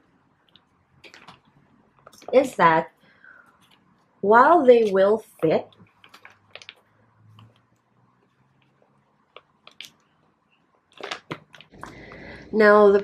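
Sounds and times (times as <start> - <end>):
plastic rustling and clicking: 0.5 - 2.4, 5.8 - 7.8, 10.9 - 11.8
plastic crinkles: 5.8 - 7.6, 10.9 - 11.8.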